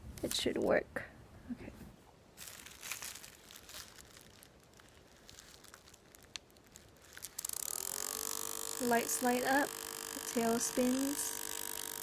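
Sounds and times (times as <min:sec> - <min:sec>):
paper crinkling and rustling: 0:02.4 - 0:07.7
small clicks of handled wires: 0:04.7 - 0:08.8.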